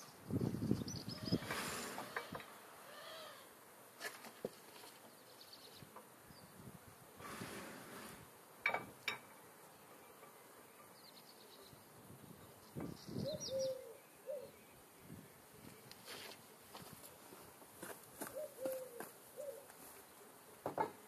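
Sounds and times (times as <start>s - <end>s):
small birds chirping: 0.0s - 3.5s, 4.4s - 6.7s, 9.3s - 17.4s
low bird call: 0.9s - 3.5s, 12.7s - 14.8s, 18.2s - 19.7s.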